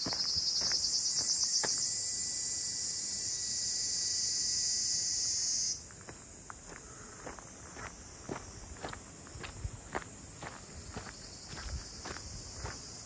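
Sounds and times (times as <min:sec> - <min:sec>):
footsteps on dirt trail: 0:00.0 - 0:02.0, 0:05.8 - 0:13.0
cicada buzzing: 0:00.0 - 0:06.4, 0:10.8 - 0:13.0.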